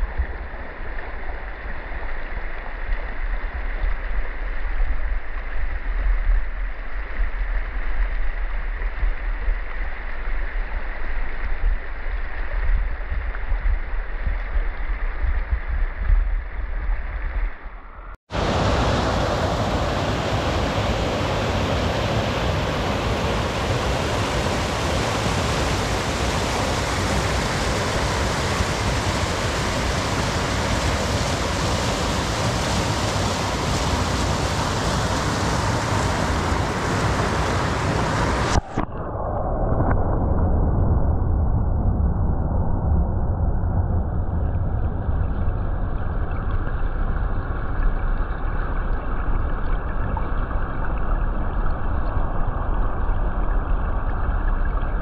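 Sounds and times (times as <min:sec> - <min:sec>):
heavy low rumble: 0:00.0 - 0:55.0
stream water rushing: 0:18.3 - 0:38.8.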